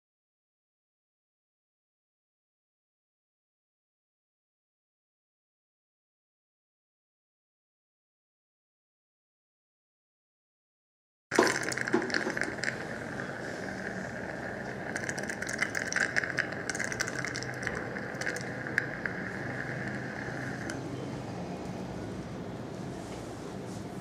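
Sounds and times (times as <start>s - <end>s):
dental equipment hissing: 11.4s - 20.8s
metal instruments clicking and rattling: 11.4s - 20.8s.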